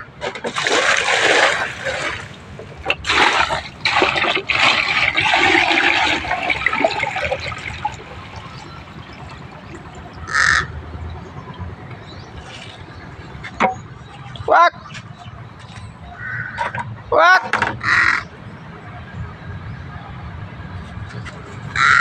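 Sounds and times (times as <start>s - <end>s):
water pouring into plastic basin: 0.5s - 10.6s
crow cawing: 10.2s - 10.7s, 16.2s - 16.6s, 21.8s - 22.0s.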